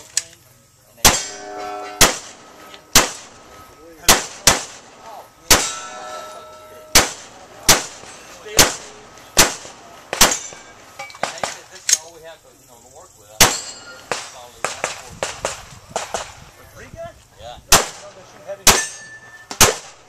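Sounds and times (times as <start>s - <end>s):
pistol shots: 1.0s - 5.9s, 6.9s - 11.6s, 13.4s - 16.4s, 17.7s - 20.0s
metallic ringing: 1.1s - 9.2s, 10.3s - 11.3s, 13.4s - 14.4s, 18.6s - 19.6s.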